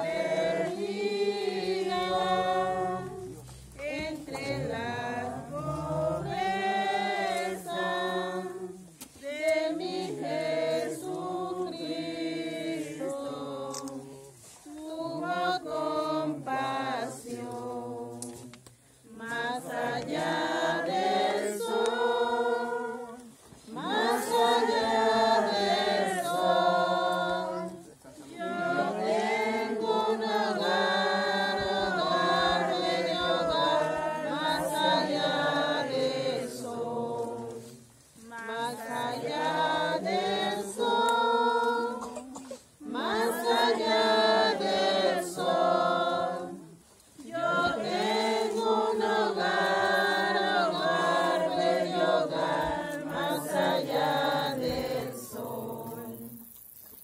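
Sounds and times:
group singing a hymn: 0.0s - 57.0s.

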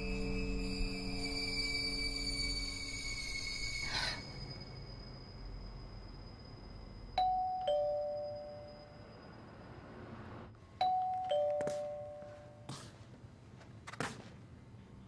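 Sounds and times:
two-tone doorbell chime: 7.2s - 9.1s, 10.8s - 12.7s.

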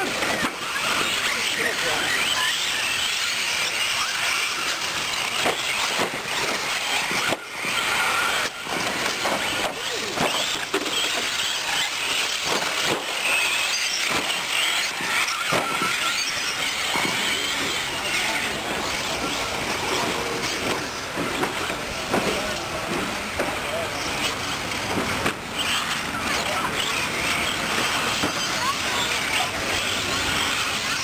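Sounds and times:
rc truck motors whining: 0.0s - 31.0s
knocks from landings: 4.3s - 17.5s.

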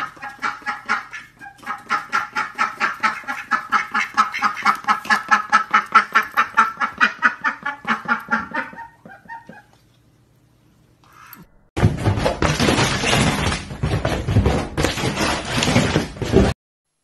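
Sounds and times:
ducks quacking: 0.0s - 9.7s.

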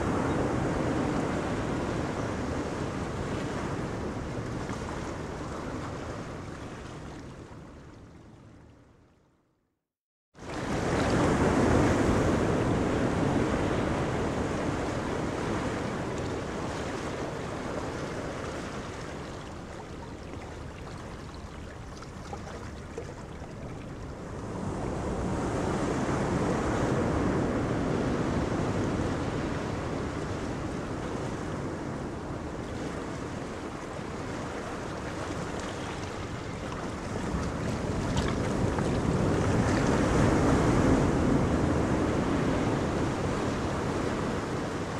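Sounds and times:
boat wake: 0.0s - 9.6s, 10.4s - 44.9s
sea water rushing: 10.4s - 44.9s
wind buffeting microphone: 10.6s - 44.9s.

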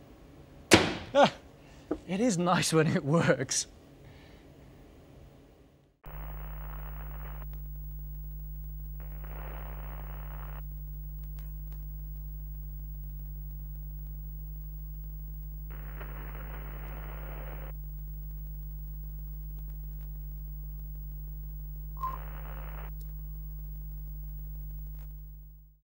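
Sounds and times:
electrical mains hum: 0.0s - 25.8s
static hiss: 6.0s - 25.8s.

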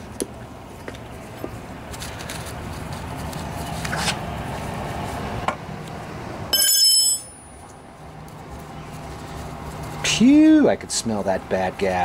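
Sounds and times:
metallic ring of wrench set down: 6.5s - 7.5s.

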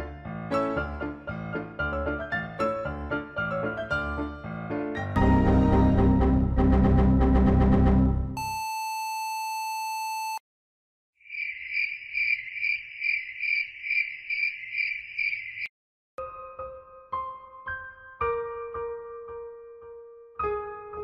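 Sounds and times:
soft piano music: 0.0s - 6.7s, 16.2s - 21.0s
background music: 0.0s - 8.4s
electronic beep tone: 8.4s - 10.4s
cricket chirping sound effect: 11.2s - 15.7s.

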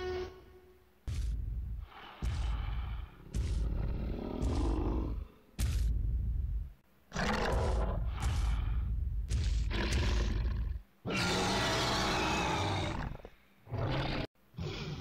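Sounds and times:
long dinosaur roar: 9.7s - 15.0s.

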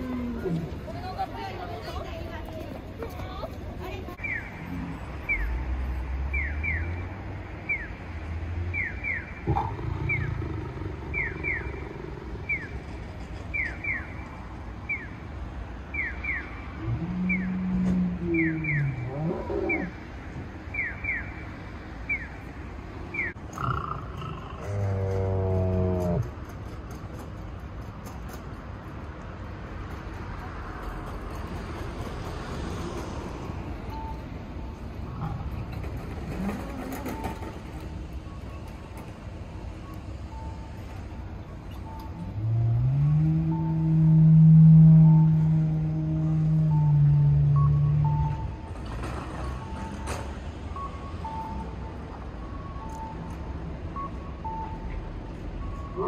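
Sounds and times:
traffic: 0.0s - 56.0s
dinosaur roar: 9.5s - 12.5s, 16.8s - 19.9s, 23.5s - 26.3s, 42.4s - 48.2s
short faint beeps: 33.9s - 34.9s, 37.0s - 42.4s, 46.6s - 48.7s, 49.4s - 56.0s.

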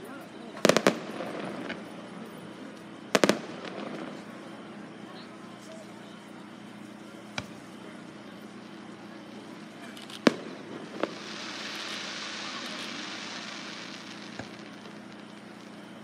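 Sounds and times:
high hissing crackle: 8.5s - 16.0s.

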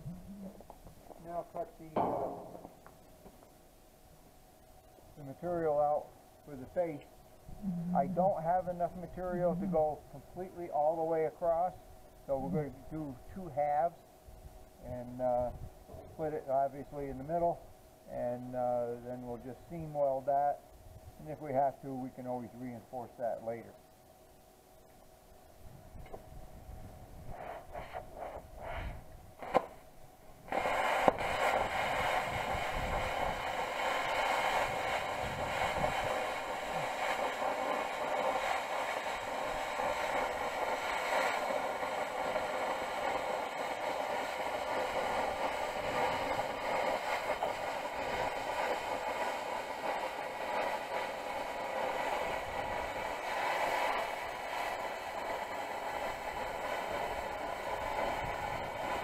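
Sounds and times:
plasma cutter arc hissing: 1.2s - 2.9s, 7.8s - 10.0s, 30.5s - 59.0s.

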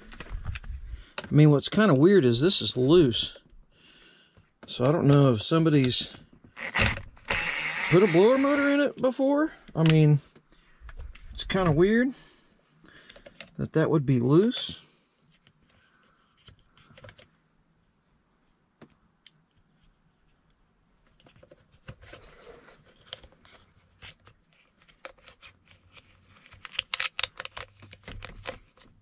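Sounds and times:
plastic clicks and rustles: 22.8s - 29.0s.

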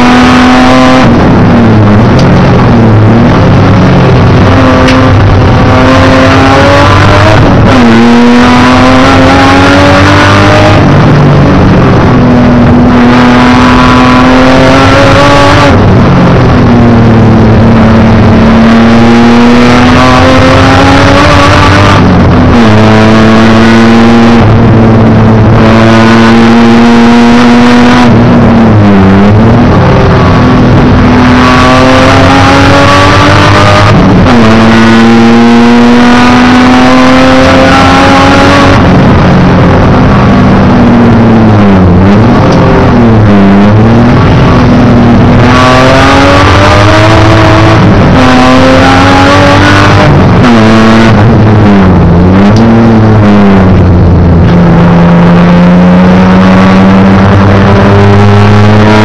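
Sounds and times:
race car engine revving: 0.0s - 59.0s.

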